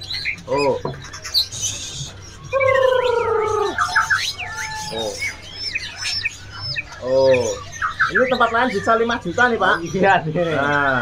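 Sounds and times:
bird trills: 0.0s - 11.0s
caged songbirds calling: 0.0s - 11.0s.

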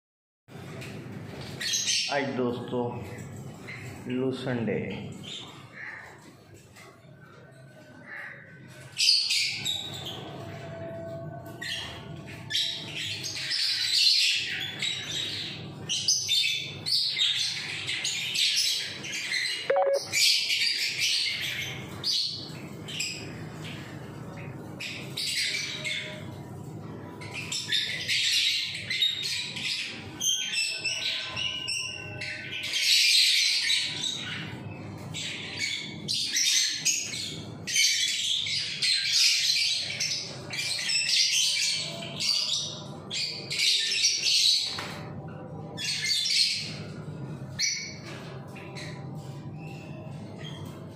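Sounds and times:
small birds chirping and squawking: 0.5s - 50.9s.

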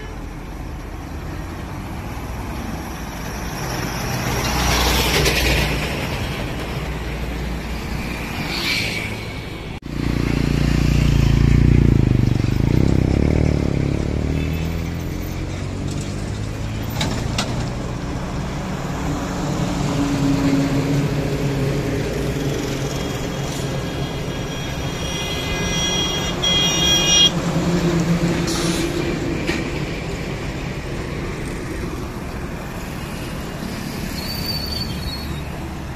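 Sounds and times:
highway traffic passing: 0.0s - 35.9s
vehicle horn: 23.6s - 27.3s.

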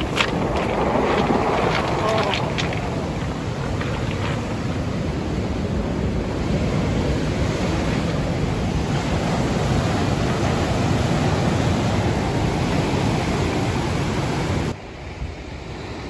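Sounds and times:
surf washing over cobble beach: 0.0s - 16.0s.

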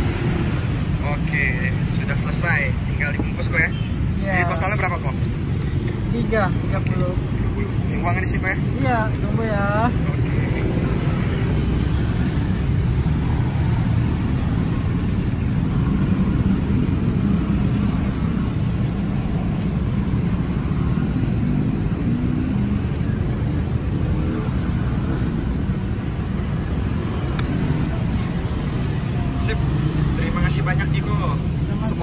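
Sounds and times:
road traffic rumble: 0.0s - 32.0s.

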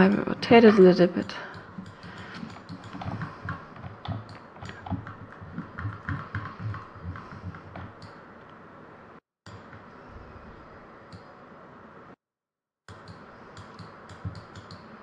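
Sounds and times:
computer mouse clicks and thumps: 1.2s - 8.2s, 12.9s - 14.9s.

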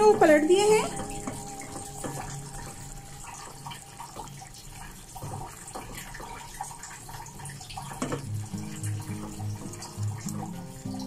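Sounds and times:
chicken simmering in a pan: 0.0s - 11.0s.

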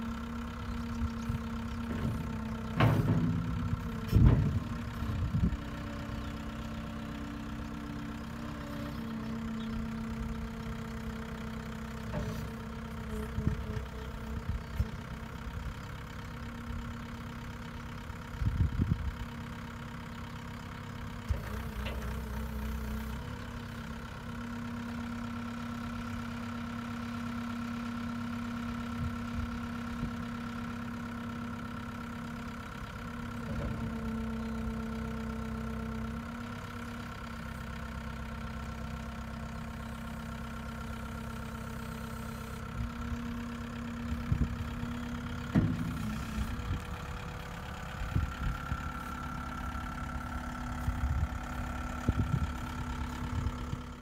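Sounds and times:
diesel engine running: 0.0s - 54.0s
clunks and knocks: 0.9s - 15.7s, 21.2s - 23.6s, 44.1s - 49.0s.

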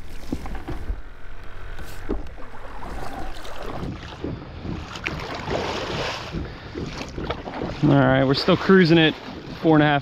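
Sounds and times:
water sloshing along hull: 0.0s - 10.0s
paddle strokes splashing: 1.8s - 10.0s
wind buffeting microphone: 2.0s - 10.0s.

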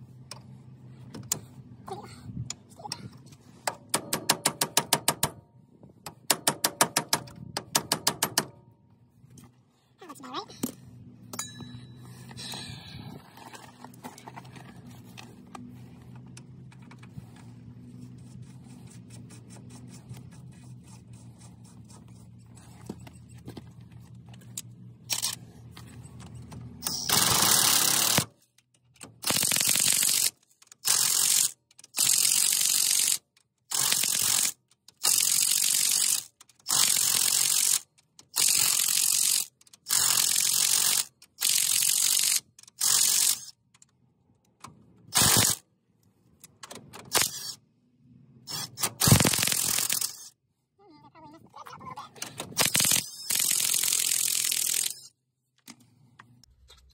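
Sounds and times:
ratchet turning: 26.8s - 43.9s, 45.1s - 45.6s, 47.1s - 47.6s, 48.4s - 50.4s, 52.5s - 55.1s.

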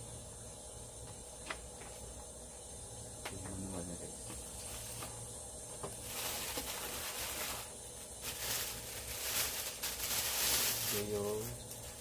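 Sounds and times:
steady low hum: 0.0s - 12.0s
packaging crinkling and rustling: 5.9s - 12.0s.

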